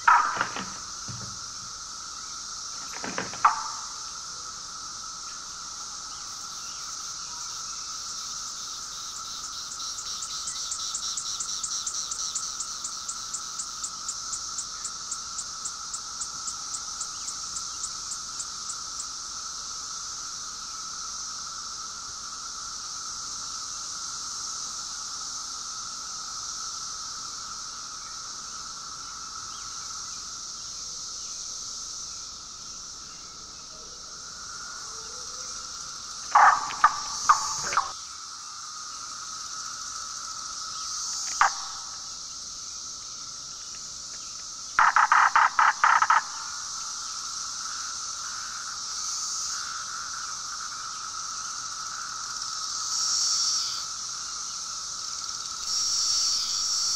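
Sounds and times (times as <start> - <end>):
cicadas droning: 0.0 - 56.9
rapid pulsing ticks: 44.8 - 46.5.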